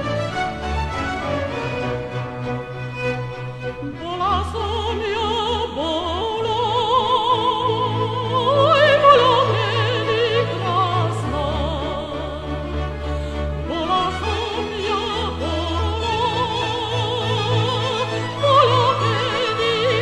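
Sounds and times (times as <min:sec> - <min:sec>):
orchestra playing: 0:00.0 - 0:20.0
woman singing operatically: 0:03.8 - 0:12.5, 0:13.6 - 0:20.0.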